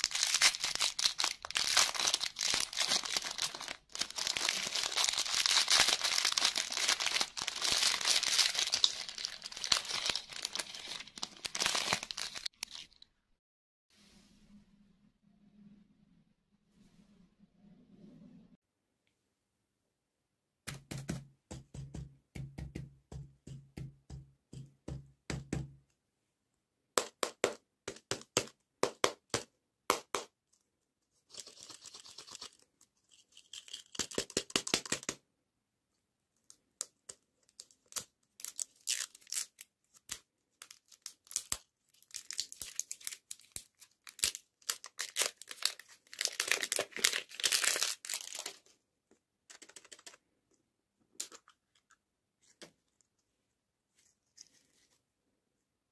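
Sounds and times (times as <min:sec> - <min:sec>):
plastic wrappers crinkling: 0:00.0 - 0:13.0, 0:31.3 - 0:34.2, 0:37.5 - 0:48.8.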